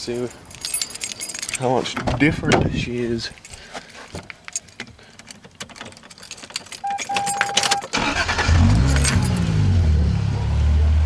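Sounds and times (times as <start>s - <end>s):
ignition keys jangling: 0.0s - 9.5s
car engine cranking and idling: 0.0s - 11.0s
dashboard beep: 6.8s - 7.9s.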